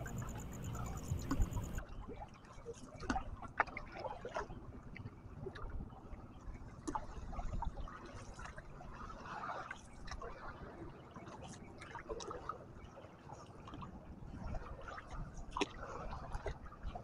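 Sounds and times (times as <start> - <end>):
paddle splashing in water: 3.0 - 4.5, 14.4 - 16.9.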